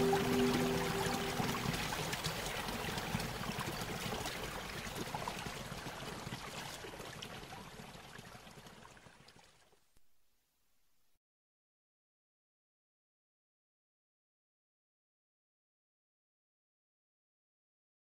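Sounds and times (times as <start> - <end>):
background music: 0.0 - 2.0
stream water babbling: 0.0 - 9.5.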